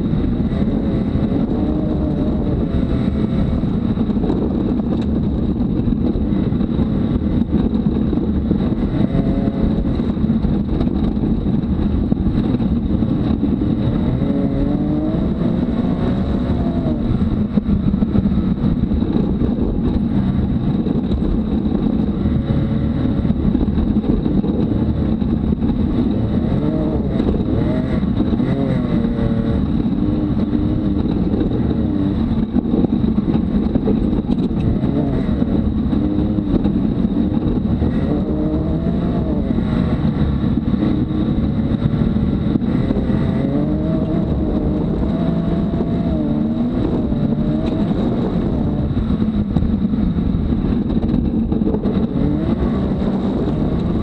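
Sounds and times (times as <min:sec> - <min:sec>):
engine revving: 0:00.0 - 0:54.0
tyres rumbling over dirt trail: 0:00.0 - 0:54.0.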